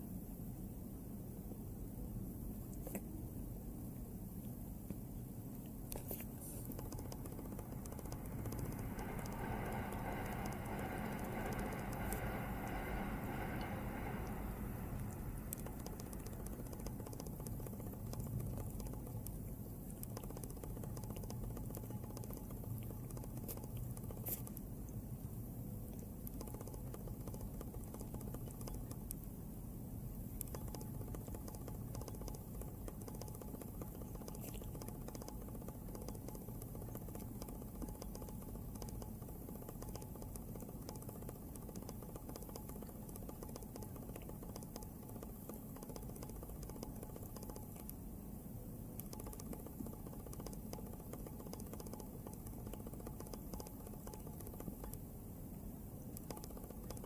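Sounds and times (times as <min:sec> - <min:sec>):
cat licking fur: 0:05.5 - 0:29.3, 0:30.1 - 0:48.0.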